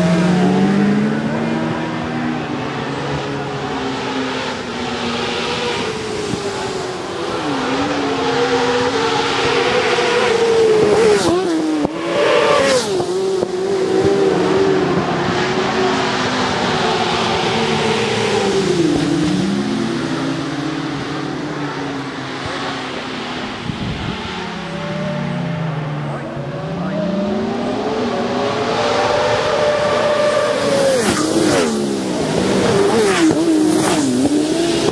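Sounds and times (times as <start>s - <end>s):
motorcycle engines revving: 0.0s - 34.9s.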